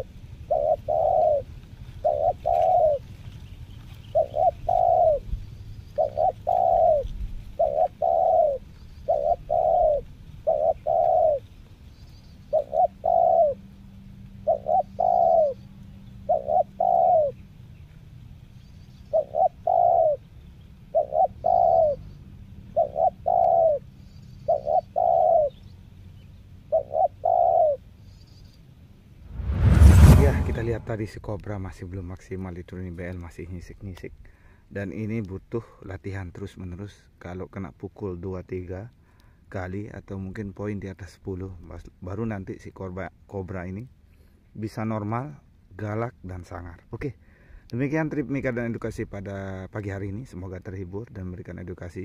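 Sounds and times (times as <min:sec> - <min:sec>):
dove cooing: 0:00.0 - 0:05.3, 0:05.9 - 0:11.6, 0:12.4 - 0:13.6, 0:14.4 - 0:15.6, 0:16.2 - 0:17.4, 0:19.0 - 0:20.3, 0:20.9 - 0:22.1, 0:22.7 - 0:25.6, 0:26.7 - 0:27.9.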